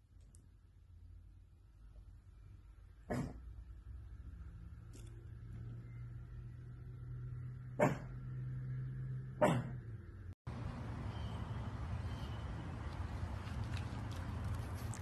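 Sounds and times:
dog barking: 0:03.1 - 0:03.4, 0:07.8 - 0:08.2, 0:09.4 - 0:09.8.

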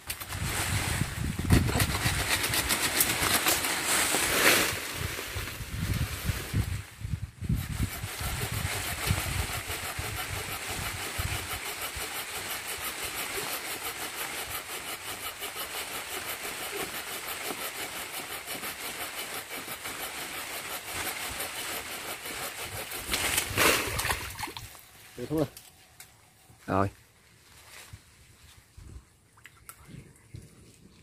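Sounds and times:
hand saw cutting branch: 0:01.4 - 0:05.1, 0:07.5 - 0:24.5.

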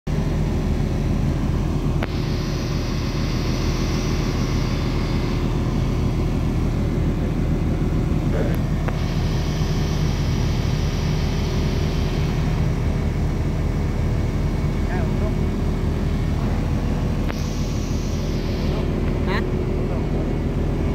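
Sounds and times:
heavy machinery engine droning: 0:00.1 - 0:20.9.

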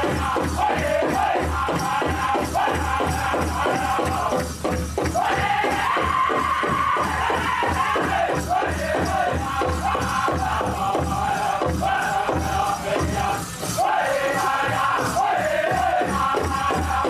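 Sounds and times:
big drum beating: 0:00.0 - 0:17.0
group singing in high voices: 0:00.0 - 0:17.0.

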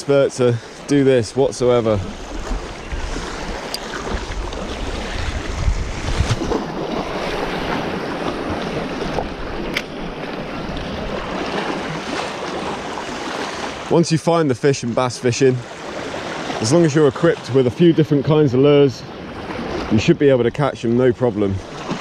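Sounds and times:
sea waves against rocks: 0:00.1 - 0:20.4, 0:21.0 - 0:22.0
wind buffeting microphone: 0:01.4 - 0:12.2.

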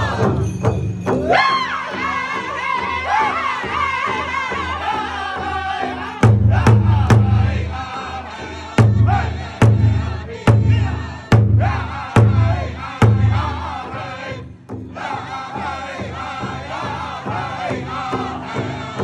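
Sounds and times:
high-pitched group singing: 0:00.0 - 0:19.0
large drum strikes: 0:06.2 - 0:07.8, 0:08.8 - 0:18.5.

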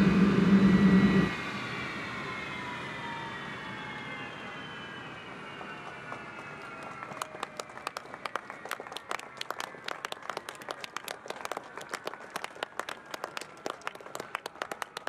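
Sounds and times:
faint high whine: 0:00.0 - 0:07.0
crowd applauding: 0:05.6 - 0:15.0.

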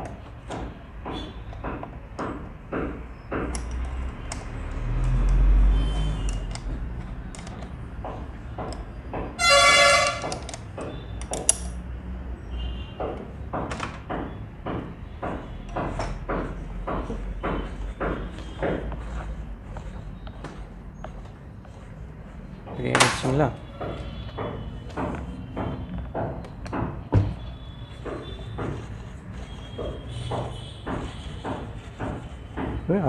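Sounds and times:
metal clicks and knocks: 0:00.0 - 0:05.5, 0:06.2 - 0:09.4, 0:10.0 - 0:11.8
vehicle horn honk: 0:09.4 - 0:10.3.

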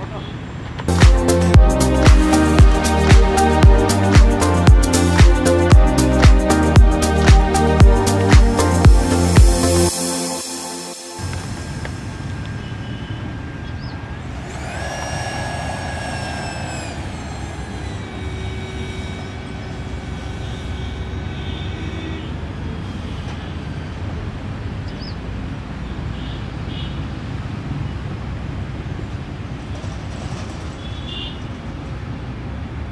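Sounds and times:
low rumble: 0:14.3 - 0:19.8.

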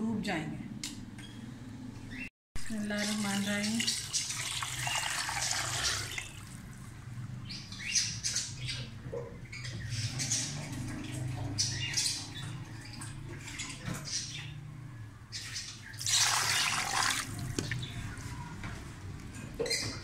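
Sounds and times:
water pouring into a pot: 0:03.0 - 0:06.9, 0:16.0 - 0:17.8
splashing and clattering: 0:16.0 - 0:18.0.

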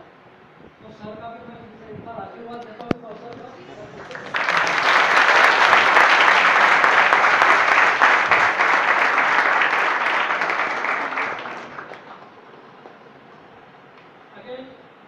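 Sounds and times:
audience applauding: 0:03.8 - 0:13.2.

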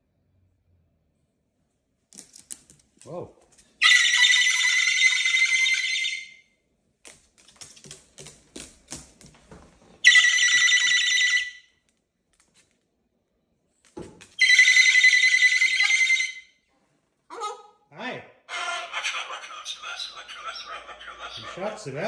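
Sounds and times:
cockatoo screaming: 0:03.8 - 0:06.4, 0:18.5 - 0:21.8.

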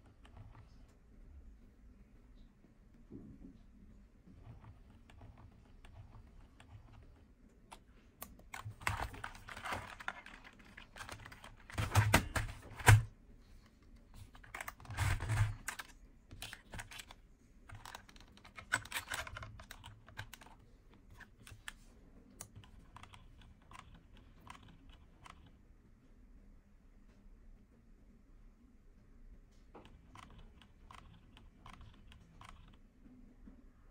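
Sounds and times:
plastic clacking on keyboard keys: 0:04.4 - 0:13.1, 0:13.8 - 0:21.8, 0:22.4 - 0:25.5, 0:29.8 - 0:32.8.

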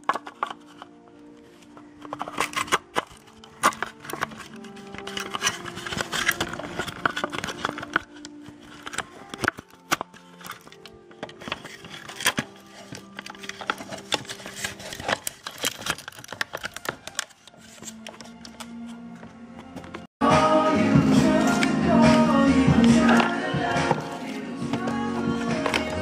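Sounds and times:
clicks and scrapes of parts: 0:00.0 - 0:20.1, 0:23.0 - 0:26.0
background music: 0:00.0 - 0:26.0.

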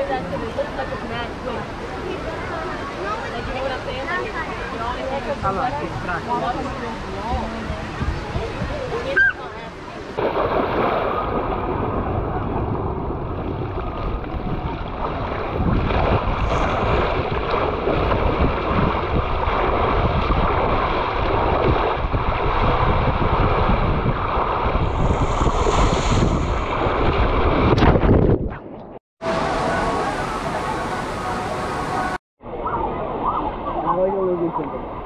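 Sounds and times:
sharp water splash: 0:10.0 - 0:28.6
hiss of spray and wind: 0:24.1 - 0:27.1.

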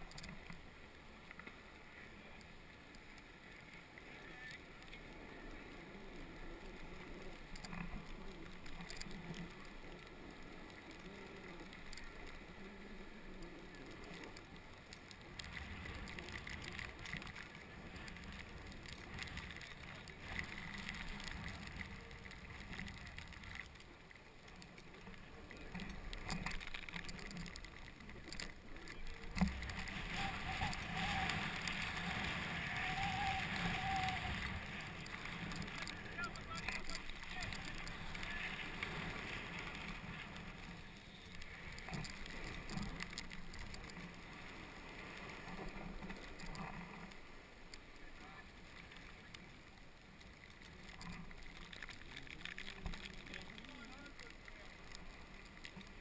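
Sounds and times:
snowboard scraping over snow: 0:27.1 - 0:47.6.

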